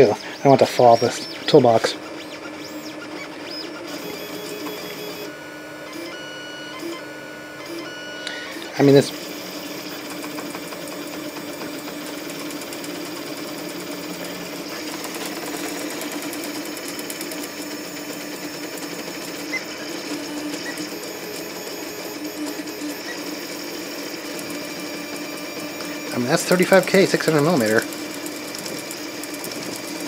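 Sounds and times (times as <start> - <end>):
stepper motors whirring: 0.0 - 30.0.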